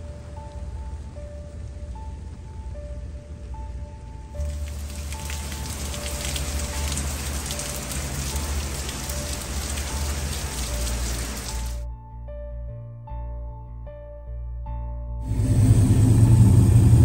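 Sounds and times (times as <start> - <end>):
soft background music: 0.0 - 17.0
heavy rain falling: 4.4 - 11.8, 15.3 - 17.0.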